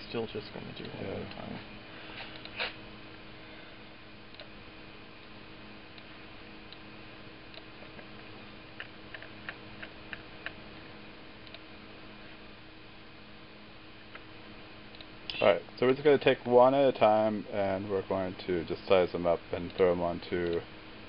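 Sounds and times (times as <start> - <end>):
low electrical hum: 0.0 - 21.0
computer mouse clicks: 4.3 - 4.5, 8.8 - 10.6, 11.4 - 11.6, 14.9 - 15.1.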